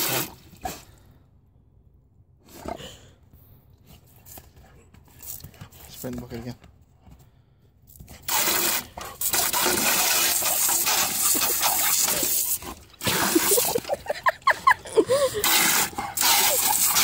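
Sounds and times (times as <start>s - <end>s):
hose spray hissing and splashing: 0.0s - 0.4s, 8.3s - 14.0s, 15.4s - 17.0s.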